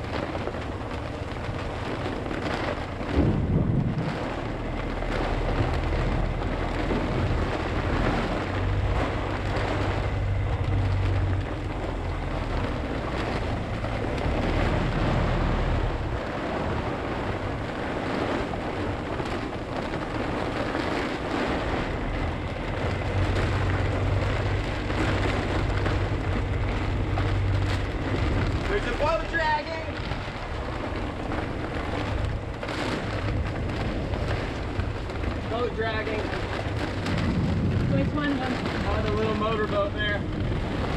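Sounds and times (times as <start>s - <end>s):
low rumble: 0.0s - 40.9s
storm wind and heavy rain: 0.0s - 40.9s.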